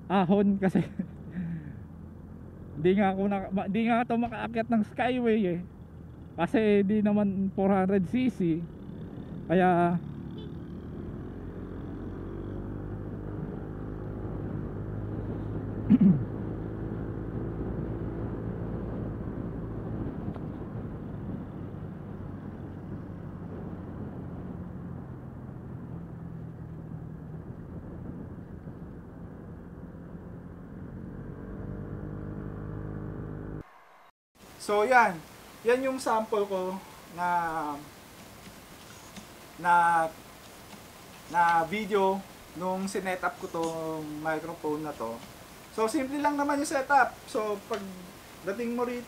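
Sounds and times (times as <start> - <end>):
road noise: 0.0 - 49.0
motorcycle engine running: 5.6 - 6.4, 8.4 - 33.7.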